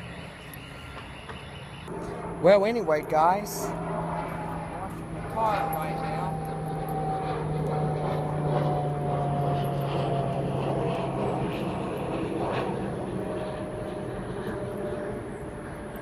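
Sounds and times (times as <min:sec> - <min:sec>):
airplane engine drone: 0:00.0 - 0:16.0.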